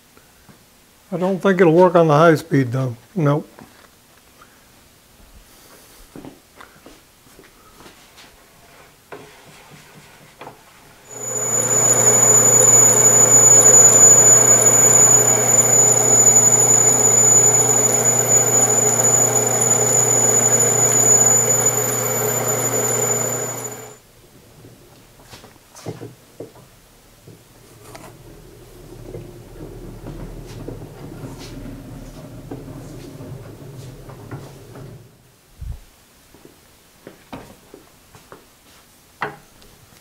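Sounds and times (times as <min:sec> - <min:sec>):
drill press motor humming and whining: 0:11.1 - 0:24.0.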